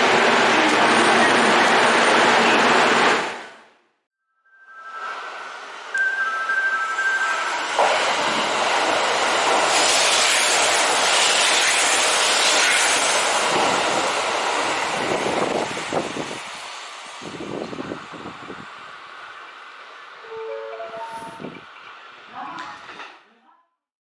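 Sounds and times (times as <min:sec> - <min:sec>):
train rushing past: 0:04.7 - 0:23.1.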